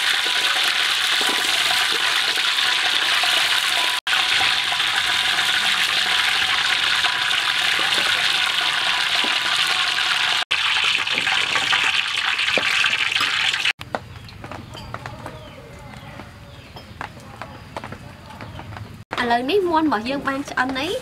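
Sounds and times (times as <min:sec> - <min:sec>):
hot oil sizzling and splattering: 0:00.0 - 0:13.8.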